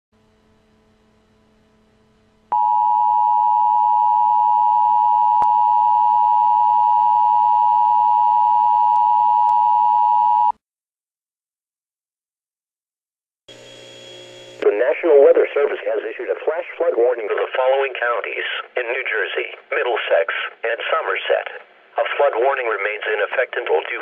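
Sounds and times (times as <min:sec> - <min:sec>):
two-tone alarm: 0:02.5 - 0:10.5.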